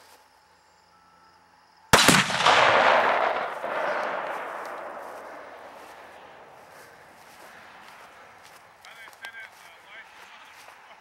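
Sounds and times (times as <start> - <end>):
explosion boom with echo: 2.0 - 6.6.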